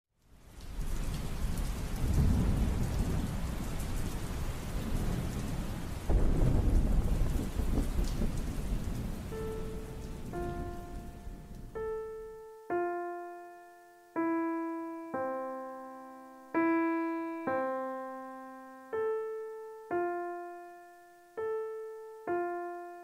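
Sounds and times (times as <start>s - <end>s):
steady rain: 0.1s - 23.0s
rolling thunder: 0.7s - 11.8s
piano note: 9.2s - 23.0s.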